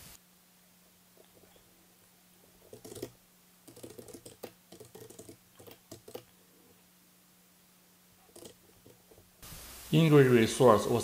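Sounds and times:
faint keyboard typing: 0:02.6 - 0:06.4, 0:08.2 - 0:09.3.

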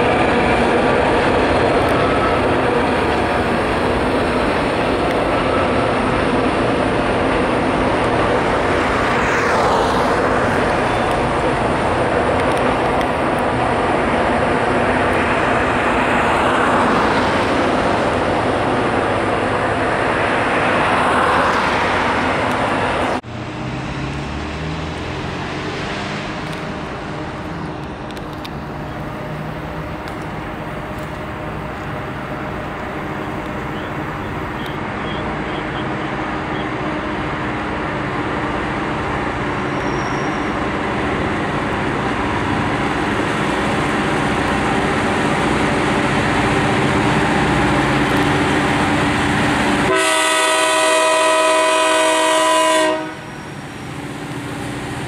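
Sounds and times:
diesel engine drone: 0:00.0 - 0:55.0
freight train rumbling: 0:00.0 - 0:55.0.

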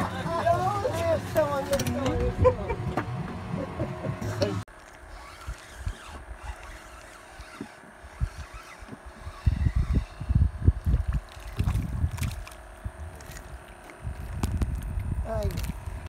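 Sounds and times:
wind buffeting microphone: 0:08.1 - 0:16.0.

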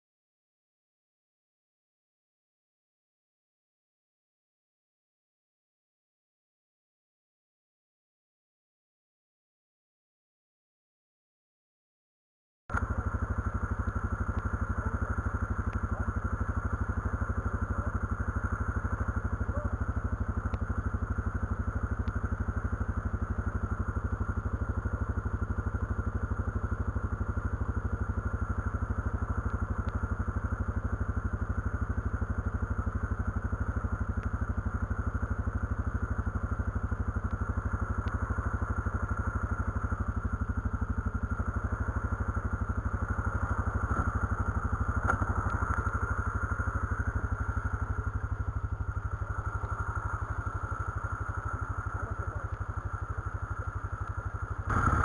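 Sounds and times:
quad engine running: 0:12.7 - 0:55.0.

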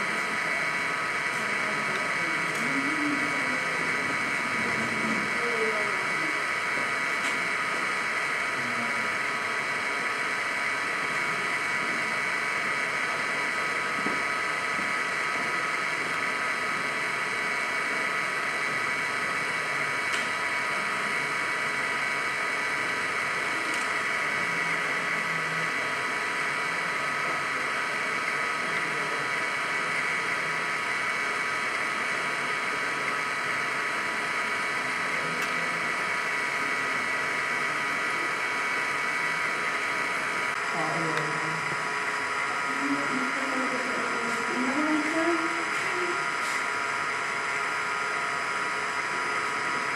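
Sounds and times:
buzzing drone with high whine: 0:00.0 - 0:49.9.

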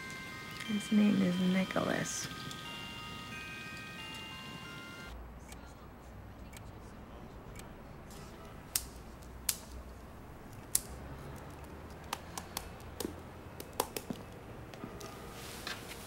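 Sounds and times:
sharp clicks and taps: 0:10.5 - 0:14.8.

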